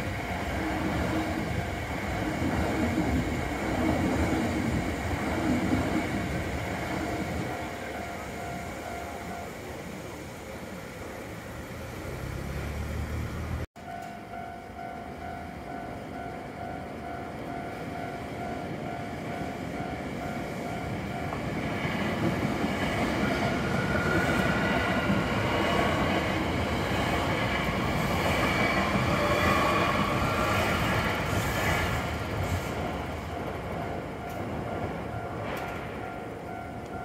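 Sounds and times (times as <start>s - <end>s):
train wheels on rails: 0.0s - 37.0s.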